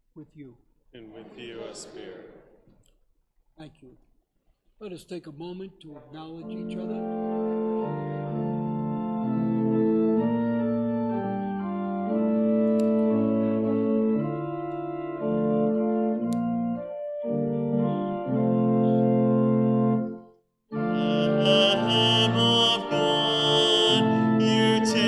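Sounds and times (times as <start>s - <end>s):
organ playing sustained chords: 6.3s - 25.0s.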